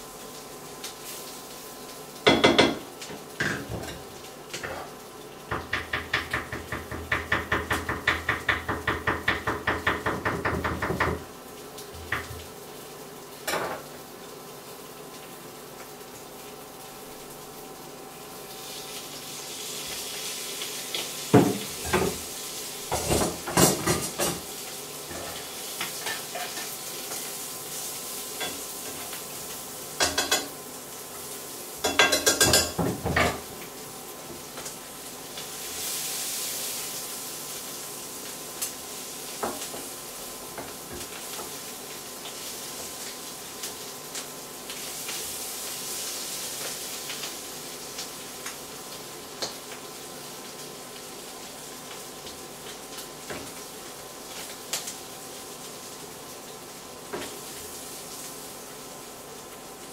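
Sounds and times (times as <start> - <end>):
food sizzling in frying pan: 0.0 - 59.9
clatter and scraping in pan: 22.9 - 24.5, 25.1 - 27.2.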